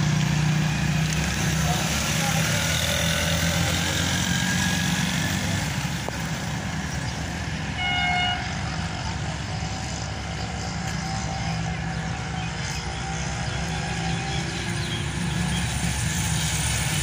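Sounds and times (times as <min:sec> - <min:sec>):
train horn toot: 0:07.8 - 0:08.5.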